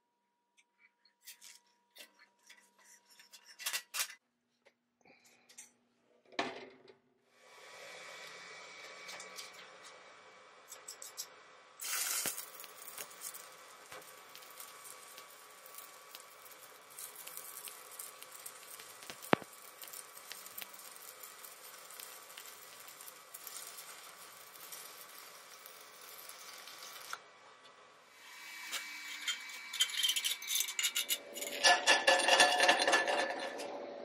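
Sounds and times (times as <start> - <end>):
welding arc crackling and sizzling: 7.4 - 33.7.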